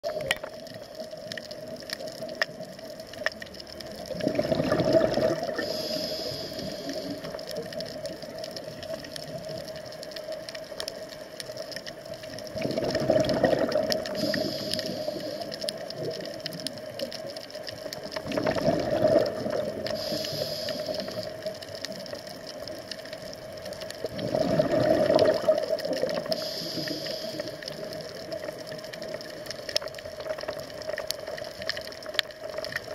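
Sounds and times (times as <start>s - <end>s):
bubbling underwater exhalations: 4.0s - 5.9s, 12.5s - 14.6s, 18.2s - 20.4s, 24.0s - 26.6s
regulator hiss: 5.5s - 7.7s, 14.0s - 16.1s, 19.8s - 21.7s, 26.1s - 28.4s.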